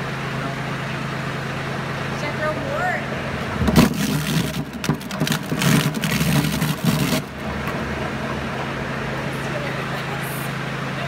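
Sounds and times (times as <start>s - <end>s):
tractor diesel engine running: 0.0s - 11.0s
spinning drum hum: 3.0s - 11.0s
apples crunching in shredder: 3.5s - 9.0s.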